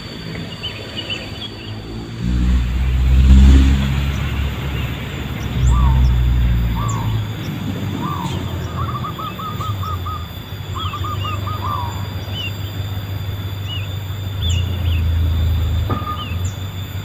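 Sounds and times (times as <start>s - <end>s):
bird chirping calls: 0.4s - 17.0s
low rumble: 0.5s - 17.0s
doves cooing: 1.0s - 17.0s.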